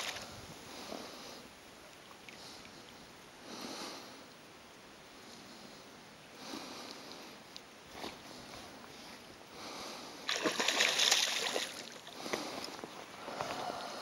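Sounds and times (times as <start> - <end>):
fish thrashing and splashing: 10.3 - 12.1.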